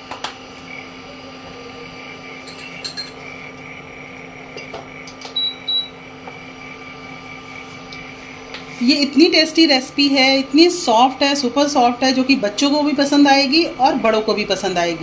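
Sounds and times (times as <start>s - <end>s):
induction cooktop humming and whining: 0.0s - 15.0s
short high beeps: 5.4s - 5.9s.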